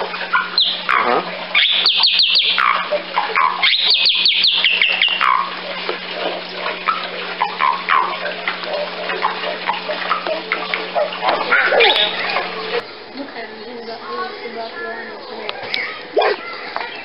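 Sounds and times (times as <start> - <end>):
bird calling: 0.0 - 12.8.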